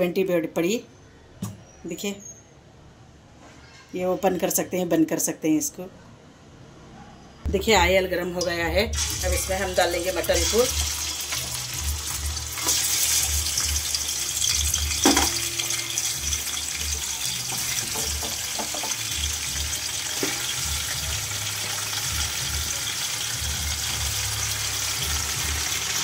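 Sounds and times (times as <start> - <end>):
meat sizzling in hot oil: 8.9 - 26.0
knock: 17.8 - 19.0.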